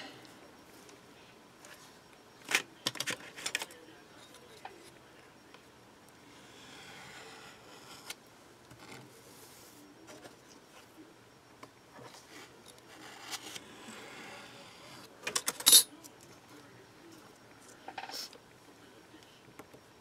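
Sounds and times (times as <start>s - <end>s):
clay rubbing and scraping: 6.2s - 11.0s, 11.9s - 15.1s.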